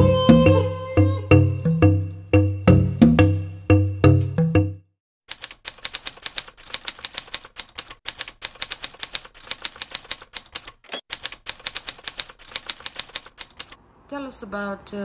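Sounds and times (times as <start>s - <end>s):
typewriter key clatter: 5.3s - 13.8s
typewriter bell ring: 10.9s - 11.2s.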